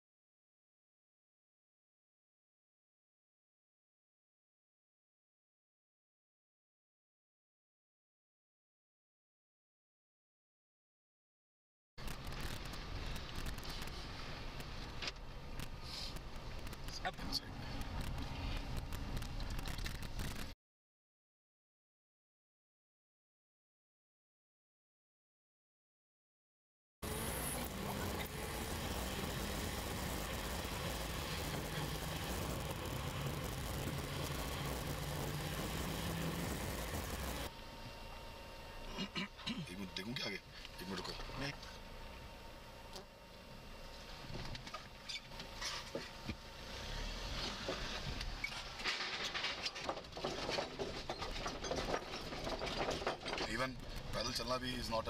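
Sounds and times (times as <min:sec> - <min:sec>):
car engine drone: 0:12.0 - 0:20.5, 0:27.0 - 0:55.0
tyre road hiss: 0:15.7 - 0:16.3, 0:27.1 - 0:37.5
wooden bridge planks clattering: 0:48.8 - 0:53.7.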